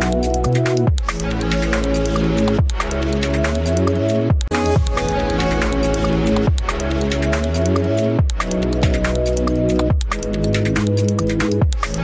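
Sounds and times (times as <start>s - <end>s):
synth chords: 1.9s - 9.8s
deep bass hit dropping in pitch: 4.5s - 7.4s.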